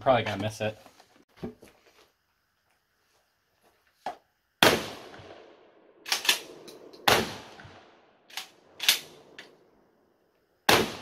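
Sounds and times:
shotgun shots echoing: 4.6 - 9.4, 10.7 - 11.0.

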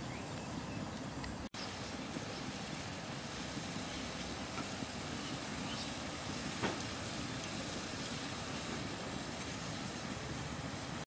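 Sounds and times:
syrup bubbling at a rolling boil: 0.2 - 11.0
boiling syrup pop: 1.6 - 11.0.

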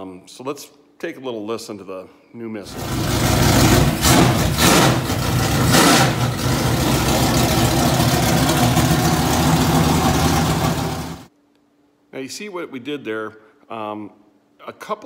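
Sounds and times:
race engine throttle snaps: 2.7 - 11.0
race engine idling: 2.7 - 11.3.

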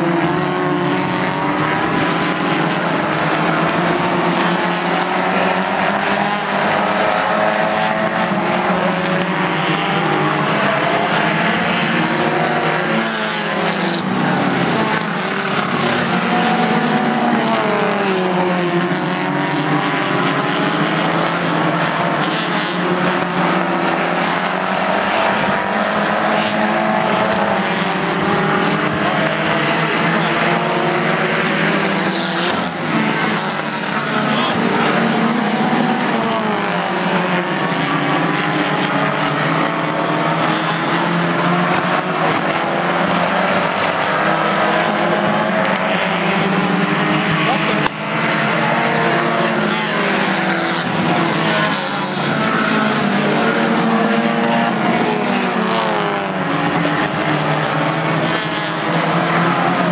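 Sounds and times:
stock car engines racing: 0.0 - 59.9.

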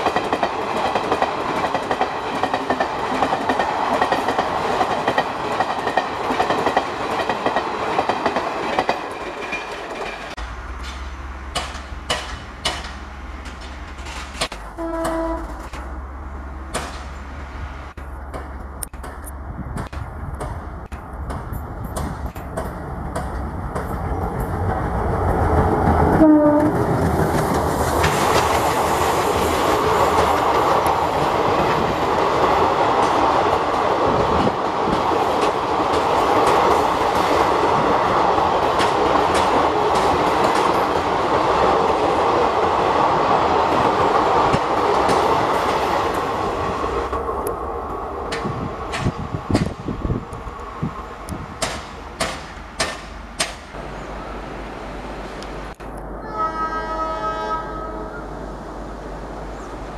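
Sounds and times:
wheel clicks over rail joints: 0.0 - 15.9
train coaches rushing and rattling: 0.0 - 59.9
train horn: 14.7 - 15.6, 26.1 - 26.8, 56.2 - 58.3.

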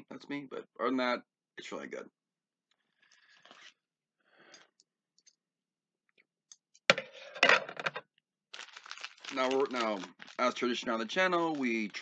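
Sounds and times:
plastic wrapper crinkling: 8.5 - 12.0.

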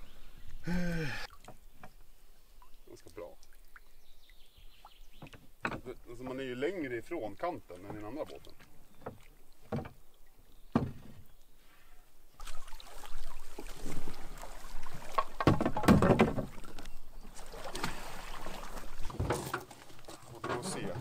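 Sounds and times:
water noise: 0.0 - 11.4, 12.3 - 21.0
knocks against boat hull: 10.7 - 11.2, 15.2 - 16.5.

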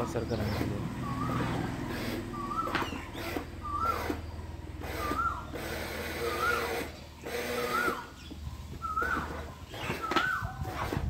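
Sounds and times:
electronic rising-and-falling chirp: 1.0 - 4.2.

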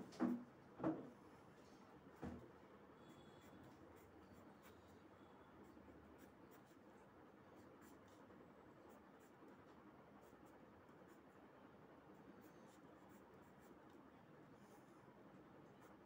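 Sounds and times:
low room noise: 0.0 - 16.0
pencil scratching on paper: 3.1 - 9.4.

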